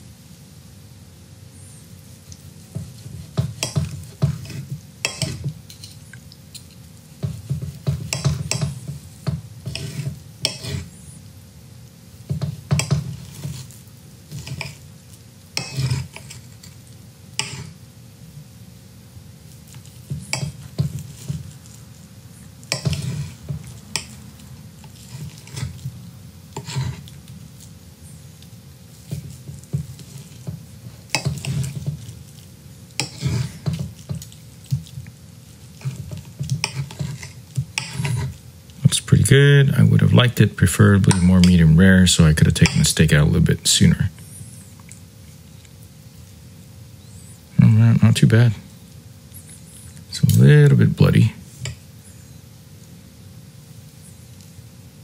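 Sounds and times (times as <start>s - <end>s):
cutlery scraping on plate: 2.7s - 9.0s, 9.6s - 10.9s, 12.3s - 14.8s, 15.6s - 16.8s, 17.4s - 17.8s, 19.7s - 21.8s, 22.7s - 24.2s, 24.8s - 25.9s, 26.5s - 27.2s, 29.0s - 32.2s, 33.0s - 35.0s, 35.7s - 38.4s, 41.0s - 41.6s, 42.6s - 43.0s
knife sawing through steak: 4.1s - 5.5s, 9.6s - 11.0s, 13.1s - 14.8s, 15.6s - 16.6s, 17.4s - 17.8s, 22.7s - 24.2s, 24.8s - 25.9s, 26.5s - 27.2s, 29.0s - 32.1s, 33.0s - 33.8s, 35.7s - 38.4s.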